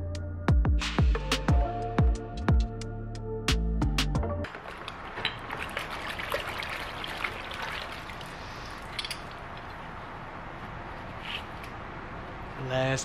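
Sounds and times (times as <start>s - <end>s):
water sloshing in a bucket: 4.5s - 10.0s.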